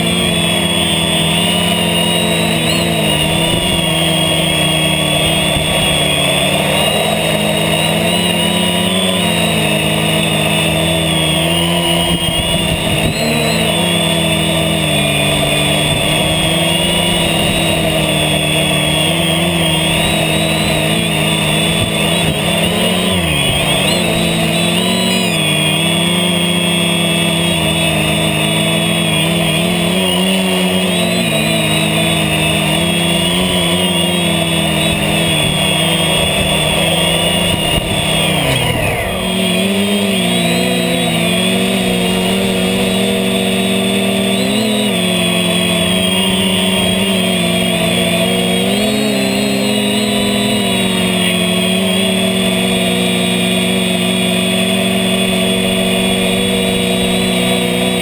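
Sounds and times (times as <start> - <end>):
drone motors whining: 0.0 - 58.0.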